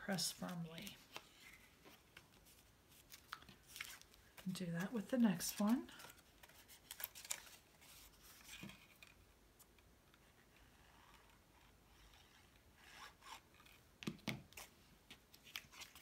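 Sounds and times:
cardstock rubbing and rustling: 0:00.2 - 0:09.0.

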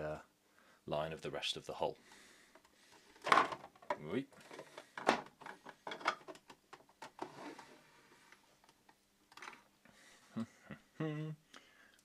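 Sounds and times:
plastic model parts knocking and clicking: 0:02.5 - 0:07.2.

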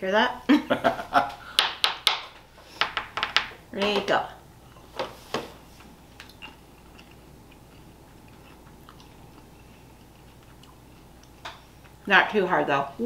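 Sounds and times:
faint chewing of gummy candies: 0:06.2 - 0:12.1.

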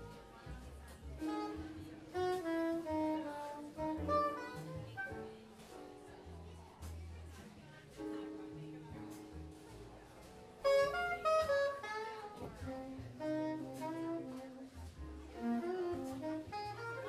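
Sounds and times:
double bass notes: 0:00.0 - 0:07.4, 0:08.5 - 0:17.0
saxophone melodic run: 0:01.2 - 0:05.3, 0:10.6 - 0:14.8, 0:15.4 - 0:17.0.

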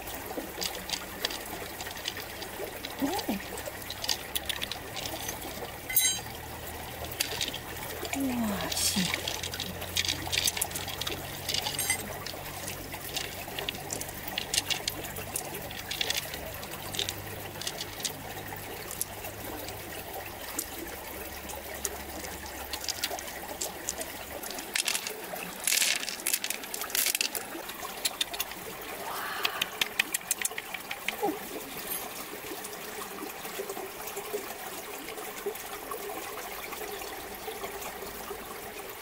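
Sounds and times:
water trickling: 0:00.0 - 0:39.0
pearls and shell clicking: 0:00.5 - 0:06.3, 0:07.0 - 0:07.7, 0:08.6 - 0:18.2, 0:22.6 - 0:28.6, 0:29.4 - 0:31.2.

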